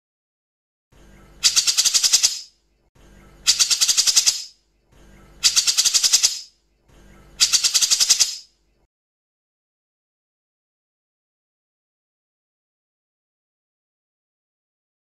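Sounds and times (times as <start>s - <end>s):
bulbul rattling call: 1.3s - 2.5s, 3.4s - 4.6s, 5.4s - 6.6s, 7.3s - 8.5s.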